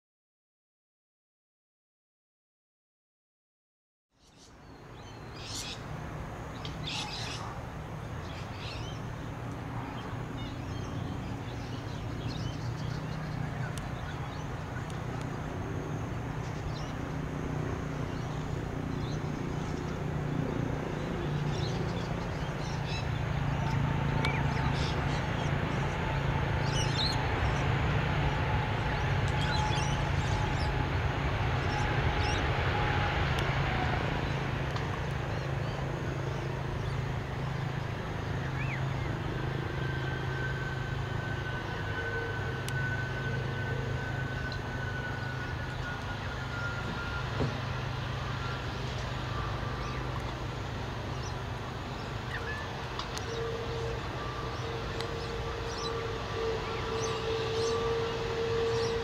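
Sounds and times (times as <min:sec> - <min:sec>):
jet engines running: 0:04.5 - 0:59.0
small birds chirping: 0:06.5 - 0:07.6.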